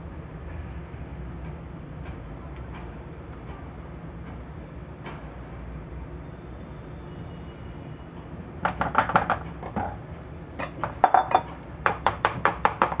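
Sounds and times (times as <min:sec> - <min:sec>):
metal tin knocking on counter: 0:08.6 - 0:10.0, 0:10.6 - 0:13.0.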